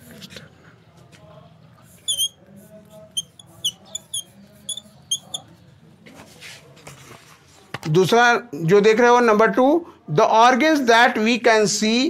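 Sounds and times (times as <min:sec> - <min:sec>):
chalk squeaking on blackboard: 0:01.9 - 0:05.6.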